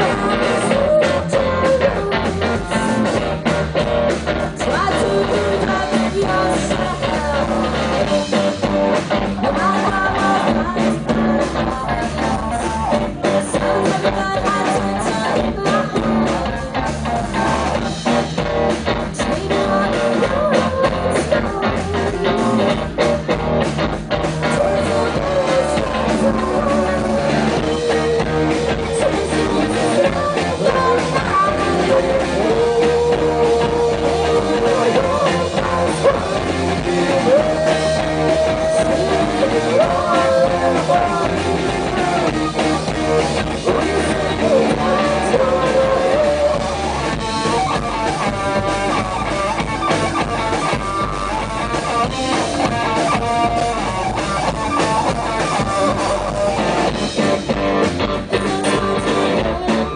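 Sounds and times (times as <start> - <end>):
woman singing: 0.0 - 3.3, 4.3 - 17.0, 19.0 - 23.0, 24.4 - 47.8, 58.2 - 59.9
bass guitar: 0.0 - 59.9
drum kit: 0.0 - 59.9
electric guitar: 0.0 - 59.9.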